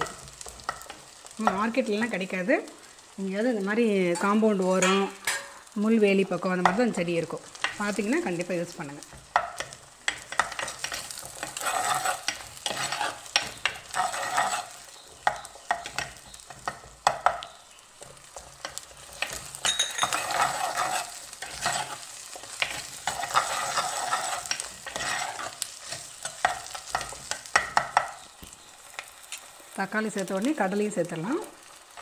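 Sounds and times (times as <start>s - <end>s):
oil sizzling: 0.0s - 32.0s
metal ladle scraping a pot: 10.3s - 16.7s, 19.1s - 27.3s.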